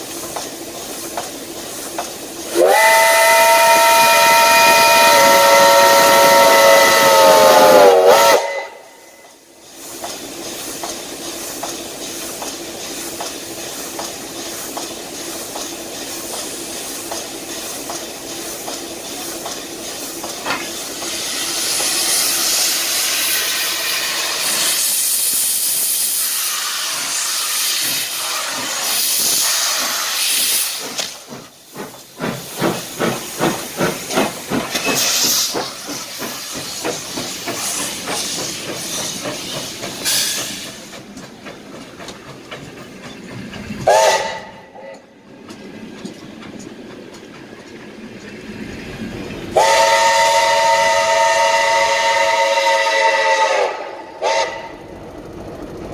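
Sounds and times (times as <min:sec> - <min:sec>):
steam hissing: 0:00.0 - 0:55.4
rhythmic steam puffs: 0:00.0 - 0:55.9
steam locomotive whistle: 0:02.5 - 0:09.4, 0:43.8 - 0:45.1, 0:49.6 - 0:54.9.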